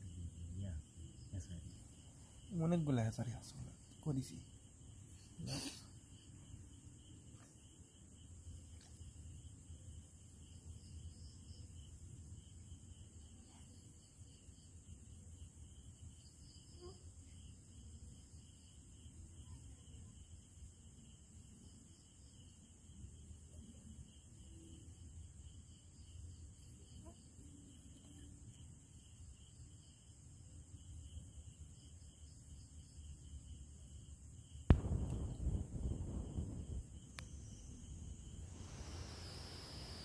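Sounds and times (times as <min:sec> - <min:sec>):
night insects chirping: 0:00.0 - 0:40.0
low rumble: 0:34.7 - 0:40.0.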